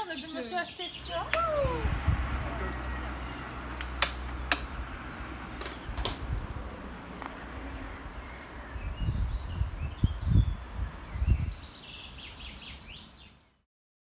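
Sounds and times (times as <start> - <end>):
low rumbling: 1.0 - 12.4
bicycle clicks: 2.8 - 8.6.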